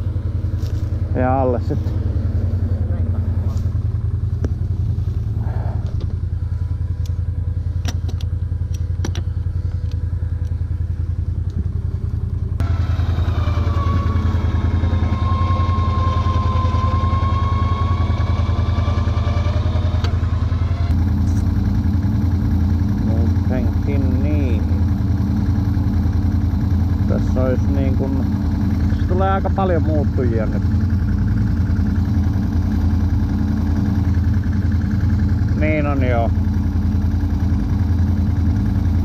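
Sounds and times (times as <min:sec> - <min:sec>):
atv engine idling: 0:00.0 - 0:39.0
high-pitched whine: 0:10.4 - 0:36.4.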